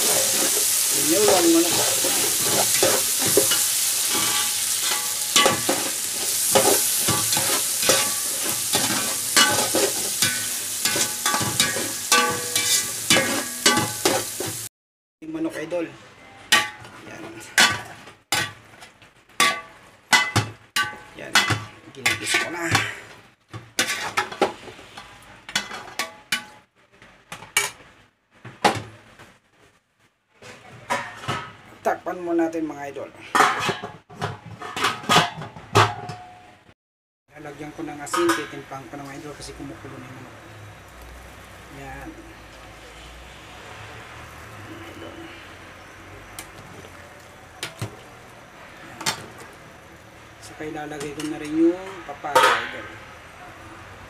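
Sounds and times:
metal spoon scraping a pot: 0.0s - 14.5s
food sizzling in hot oil: 0.0s - 14.7s, 37.4s - 53.4s.

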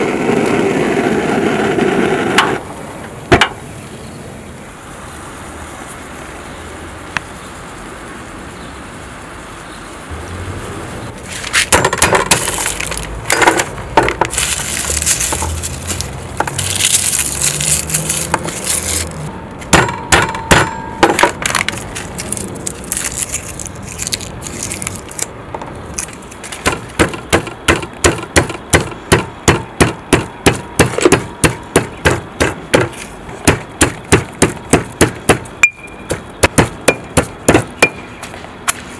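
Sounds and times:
pestle pounding in stone mortar: 11.7s - 15.6s, 19.7s - 21.6s, 26.6s - 38.1s
garlic peeling crackling: 12.3s - 19.3s, 21.5s - 27.0s.

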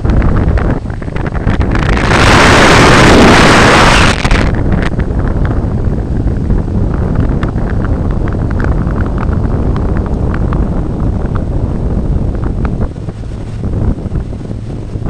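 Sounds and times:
boat rushing through water: 0.0s - 15.0s
wind rumbling on microphone: 0.0s - 15.0s
short crackles: 0.5s - 5.6s.

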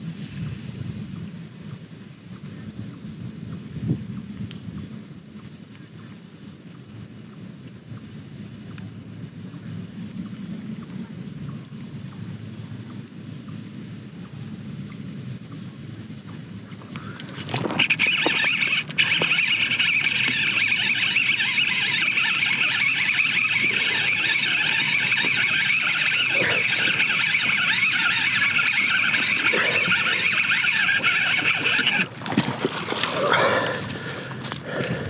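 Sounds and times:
fishing reel whining: 17.1s - 33.1s.

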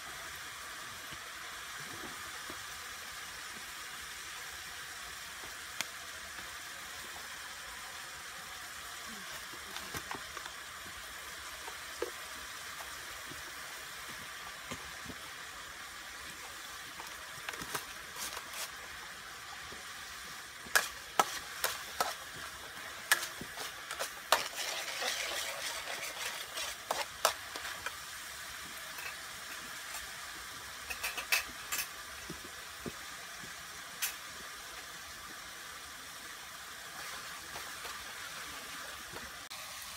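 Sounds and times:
sauce sizzling in a wok: 0.0s - 39.9s
metal utensil scraping wok: 17.0s - 18.8s, 20.7s - 28.1s, 28.9s - 30.1s, 30.8s - 32.0s.

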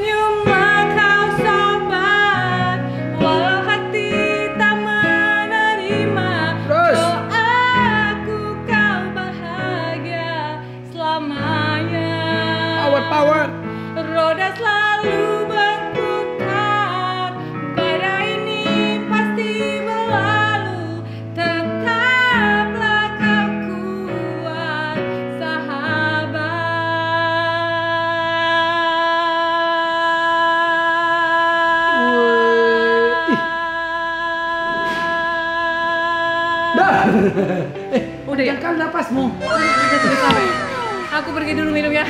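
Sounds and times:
woman singing a pop ballad: 0.0s - 13.1s, 13.9s - 37.2s
electronic keyboard chords: 39.3s - 42.0s.

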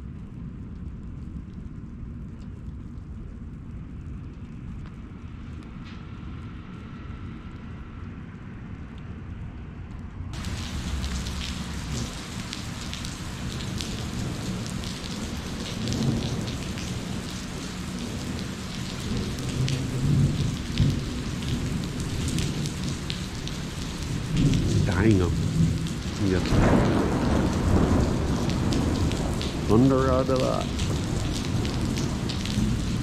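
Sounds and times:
steady rain falling: 0.0s - 9.1s, 9.9s - 33.0s
thunder rumbling: 10.4s - 33.0s.

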